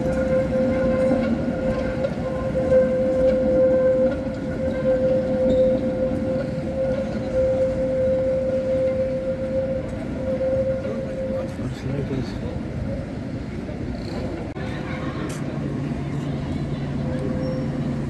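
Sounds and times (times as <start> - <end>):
low rumble of moving tram: 0.0 - 18.0
tram wheels squealing: 0.0 - 18.0.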